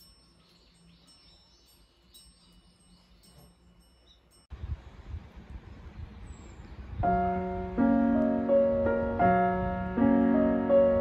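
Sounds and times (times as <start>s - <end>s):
faint steady rushing noise: 4.5s - 11.0s
slow gentle piano music: 6.9s - 11.0s.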